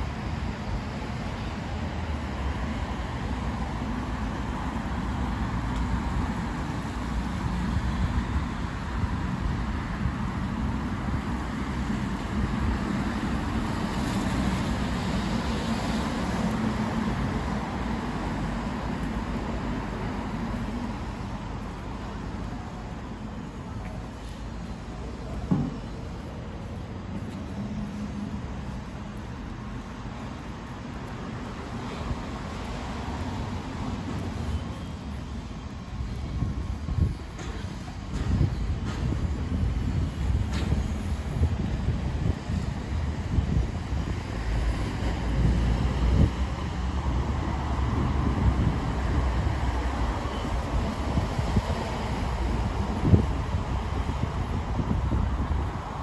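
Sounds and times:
cars going by: 0:00.0 - 0:56.0.

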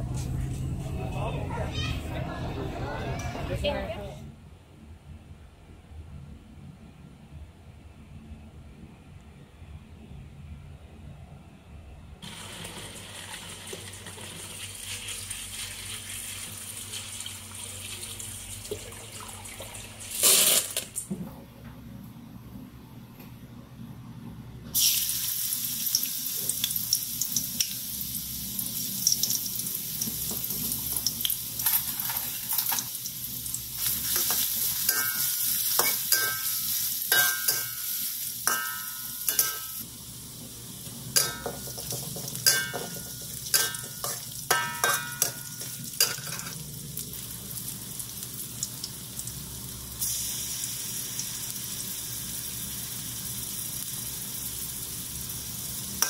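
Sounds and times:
oil sizzling in a wok: 0:12.2 - 0:18.6, 0:24.7 - 0:56.0
metal spatula scraping wok: 0:33.8 - 0:39.8, 0:42.4 - 0:46.6.

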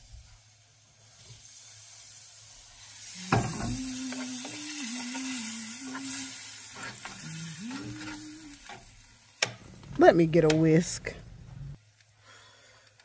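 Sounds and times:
gravy sizzling in a skillet: 0:00.0 - 0:10.2
low humming tone: 0:03.2 - 0:06.4, 0:07.0 - 0:08.8.

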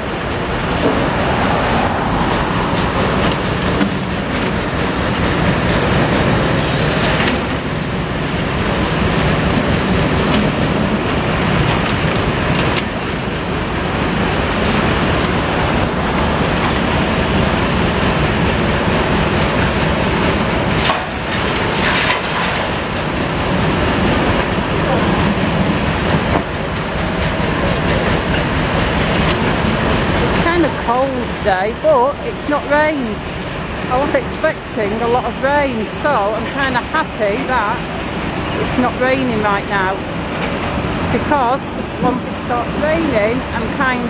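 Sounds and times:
excavator engine rumble: 0:00.0 - 0:44.0
rattling and clattering rubble: 0:00.2 - 0:31.0.

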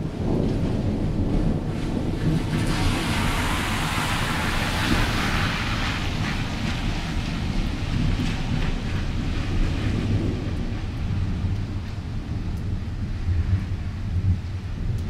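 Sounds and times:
wind rumble on microphone: 0:00.0 - 0:15.0
car tyre hiss on wet road: 0:01.6 - 0:11.8.

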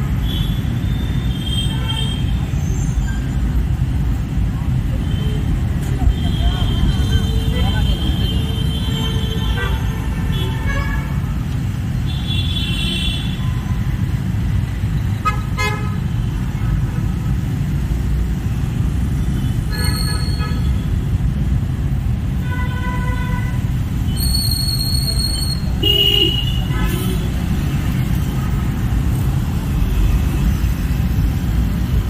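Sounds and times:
low rumble of traffic engines: 0:00.0 - 0:32.0
vehicle horns honking: 0:25.4 - 0:27.4.

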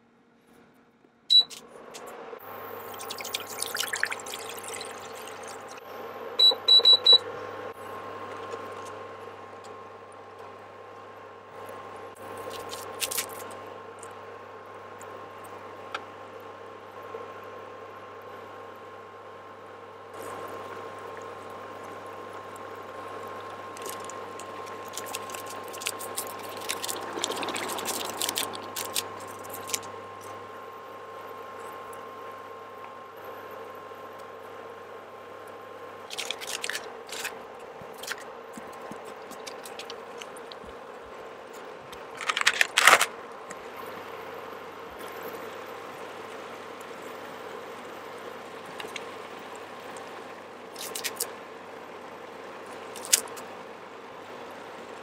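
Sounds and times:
steady hum: 0:00.0 - 0:55.0
cooktop short high beeps: 0:01.3 - 0:01.6, 0:06.4 - 0:07.2
water boiling in a pan: 0:02.4 - 0:05.9, 0:20.2 - 0:32.8
plastic sachet crinkling: 0:23.8 - 0:29.9, 0:42.1 - 0:43.1.

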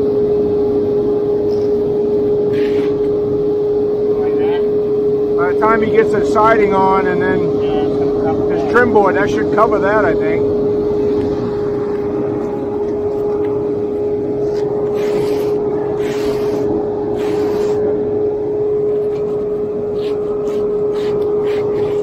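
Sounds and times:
engine droning: 0:00.0 - 0:22.0
float scraping wet concrete: 0:14.5 - 0:17.8.

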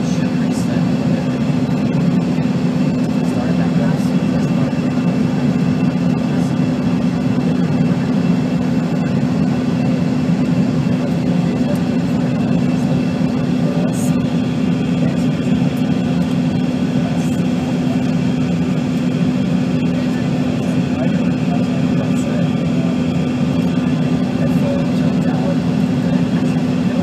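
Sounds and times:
jet engines droning: 0:00.0 - 0:27.0.

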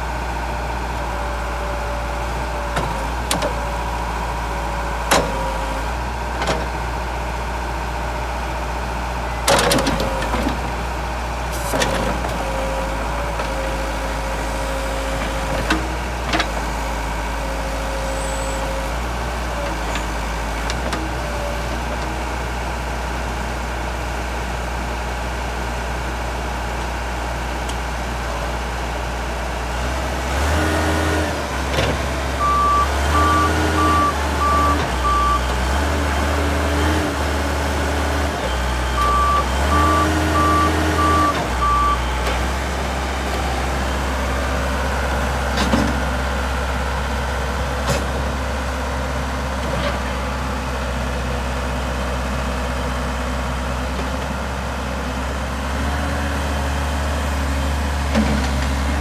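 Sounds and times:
backhoe diesel engine running: 0:00.0 - 0:59.0
backup alarm beeping: 0:32.4 - 0:35.4, 0:38.6 - 0:42.0.

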